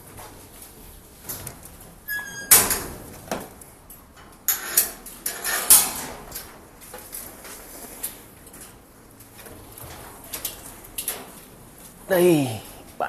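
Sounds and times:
cage door squeak: 0:02.0 - 0:03.0.

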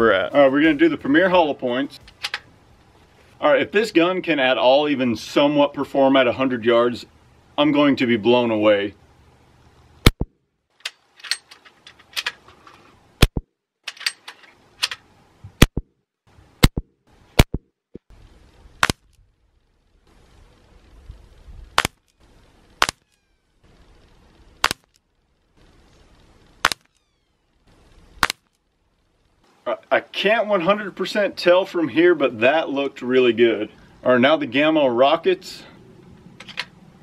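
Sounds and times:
air rifle shots cracking: 0:18.8 - 0:19.1, 0:21.8 - 0:22.0, 0:22.8 - 0:23.0, 0:24.6 - 0:24.9, 0:26.6 - 0:26.9, 0:28.2 - 0:28.5.

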